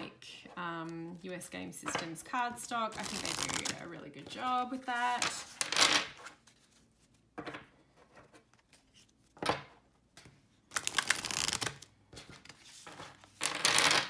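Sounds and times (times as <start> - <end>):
cards riffle-shuffled: 2.9 - 7.2, 10.2 - 14.0.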